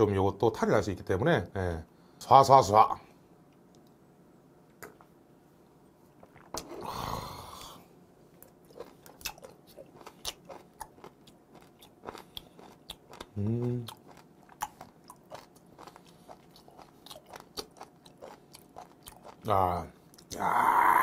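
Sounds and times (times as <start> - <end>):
wet chewing and crunching: 8.3 - 20.4.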